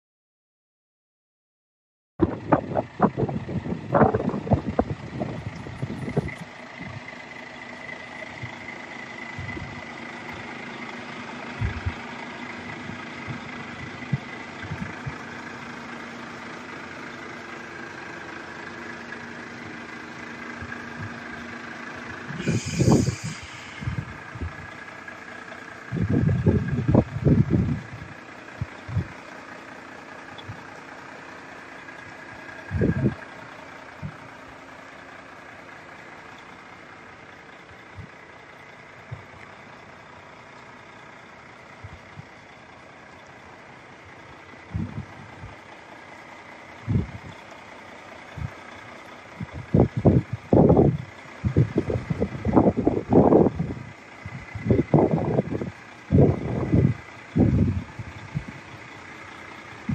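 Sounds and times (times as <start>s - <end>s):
wind buffeting microphone: 2.2s - 7.1s, 9.3s - 9.9s, 11.6s - 12.0s, 12.7s - 15.3s, 20.6s - 21.3s, 22.3s - 24.8s, 25.9s - 29.2s, 32.7s - 33.2s, 44.6s - 45.6s, 46.8s - 47.4s, 49.3s - 58.7s
diesel truck engine idling: 2.2s - 59.9s.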